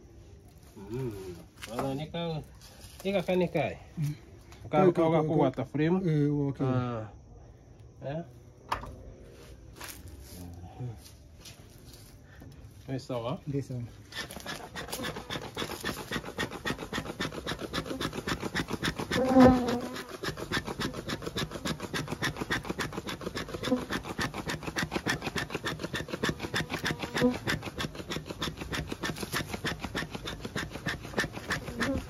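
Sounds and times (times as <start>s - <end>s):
fast rasping rub: 13.8s - 32.0s
honeybees buzzing: 14.0s - 32.0s.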